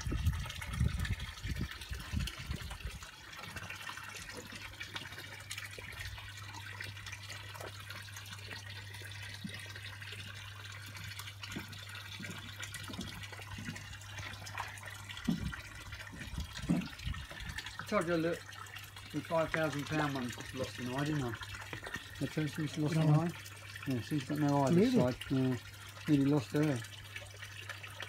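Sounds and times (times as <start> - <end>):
pond water trickling: 0.0 - 28.0
soft low bumps: 15.2 - 17.6.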